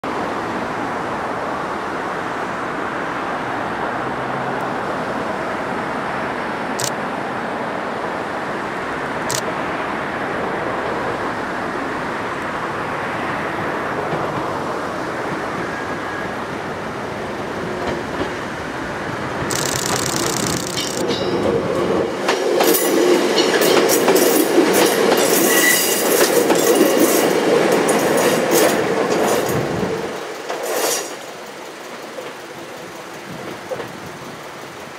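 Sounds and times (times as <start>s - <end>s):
steady rushing noise: 4.7s - 25.3s
train wheels on rails: 6.8s - 7.0s, 10.4s - 34.9s
short clicks: 9.3s - 9.5s, 19.5s - 21.0s.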